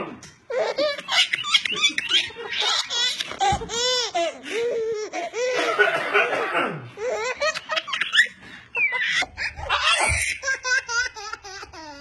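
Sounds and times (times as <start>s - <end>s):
babies laughing: 0.5s - 6.3s, 6.9s - 12.0s.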